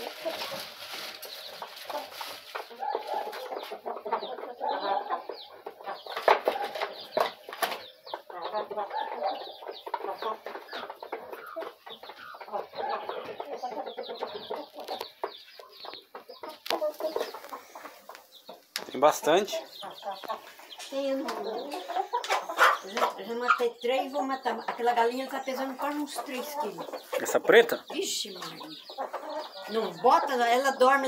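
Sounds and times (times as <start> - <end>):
hens clucking: 0.0 - 31.0.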